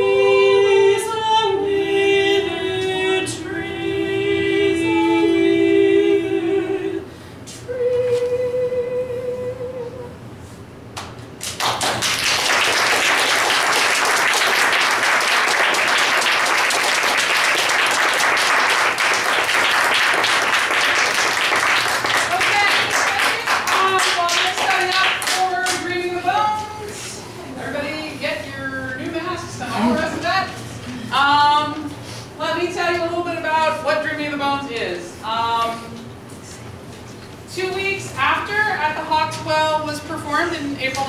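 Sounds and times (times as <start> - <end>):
woman singing long notes: 7.7 - 10.2
audience applause: 11.4 - 25.4.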